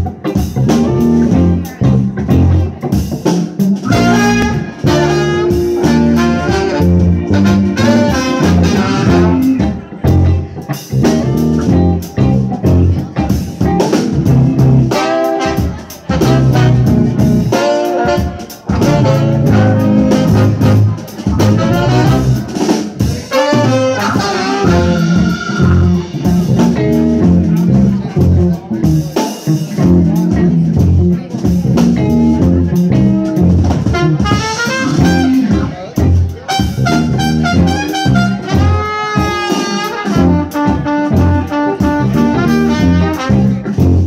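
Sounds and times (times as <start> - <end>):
drum kit: 0.0 - 44.0
electric guitars: 0.0 - 44.0
horn section playing melody: 3.9 - 9.8, 14.7 - 26.6, 33.9 - 35.8, 36.4 - 44.0.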